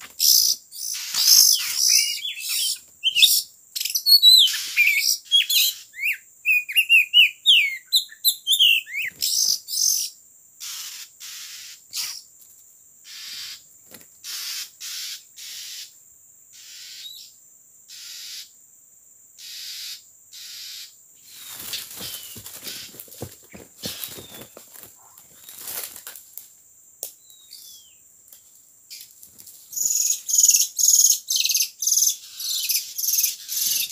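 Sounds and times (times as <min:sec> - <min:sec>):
birds whistled chirps: 0:00.2 - 0:12.3, 0:19.4 - 0:25.6, 0:27.2 - 0:28.0, 0:29.7 - 0:33.9
harsh rasping bird calls: 0:00.2 - 0:12.3, 0:13.0 - 0:13.6, 0:14.2 - 0:16.0, 0:16.6 - 0:17.3, 0:17.9 - 0:18.5, 0:19.4 - 0:25.9, 0:29.7 - 0:33.9.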